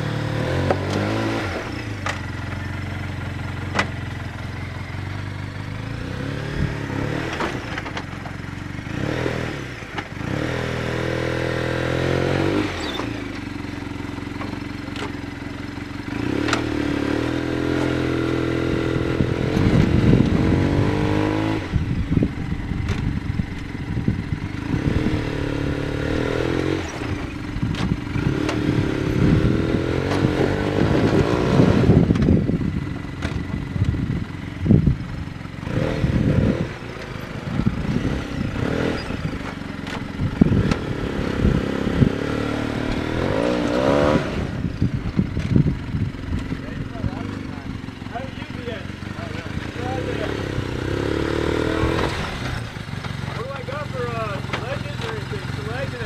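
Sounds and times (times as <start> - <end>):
engine revving: 0.0 - 56.0.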